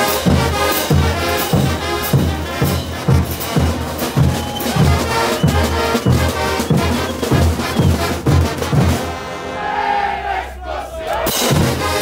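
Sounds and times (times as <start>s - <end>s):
bass drum beating: 0.0s - 9.2s
snare drums: 0.0s - 9.4s, 11.1s - 12.0s
trombones: 0.0s - 12.0s
trumpets: 0.0s - 12.0s
sousaphones: 1.2s - 8.6s.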